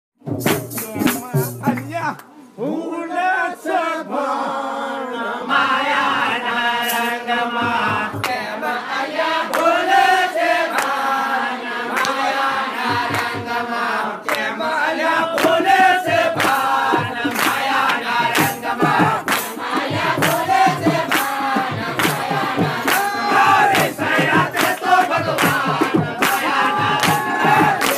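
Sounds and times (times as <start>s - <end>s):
sharp percussion strikes: 0.2s - 2.2s, 6.8s - 8.4s, 15.4s - 27.9s
voices singing together: 0.8s - 27.9s.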